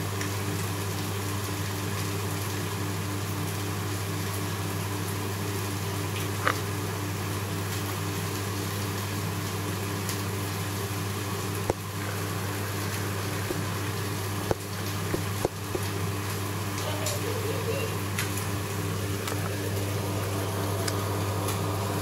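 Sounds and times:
aquarium pumps humming: 0.0s - 22.0s.

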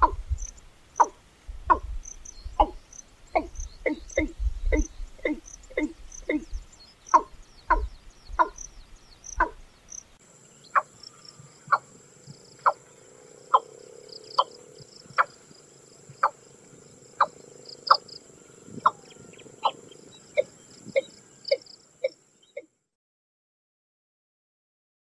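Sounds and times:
bird calling hollow notes: 0.0s - 8.7s, 9.3s - 9.6s.

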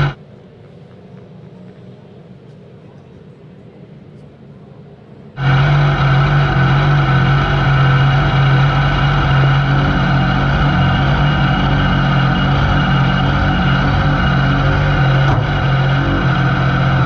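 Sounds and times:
motorcycle engine running steadily: 5.4s - 17.0s.

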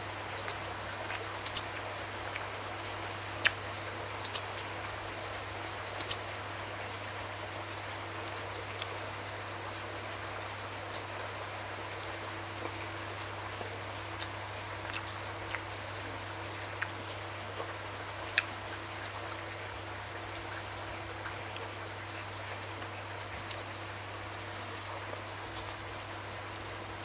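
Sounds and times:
steady hiss and low hum: 0.0s - 27.0s
wet chewing mouth clicks: 0.4s - 1.6s, 4.2s - 4.4s, 14.2s - 15.7s.

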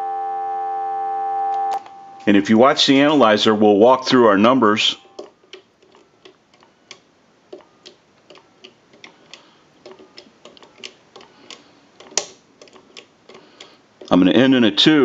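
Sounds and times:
keypad buttons clicking: 5.0s - 14.2s.

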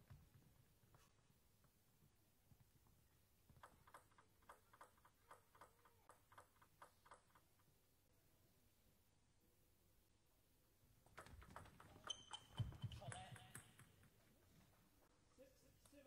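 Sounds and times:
table tennis ball bouncing: 3.5s - 7.6s, 11.0s - 14.2s.

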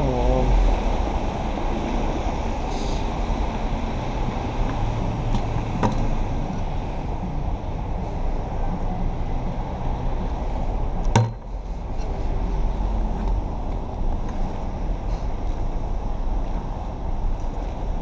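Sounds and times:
cars passing on wet pavement: 0.0s - 18.0s.

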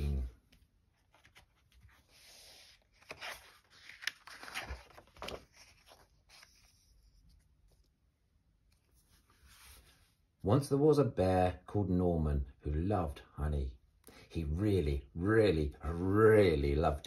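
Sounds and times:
book pages rustling: 0.1s - 10.2s
book cover flapping: 0.9s - 7.4s.

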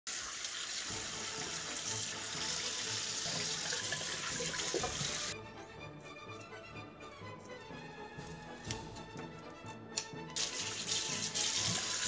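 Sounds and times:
tap water running: 0.0s - 5.4s, 10.3s - 12.0s
soft background music: 0.5s - 12.0s.

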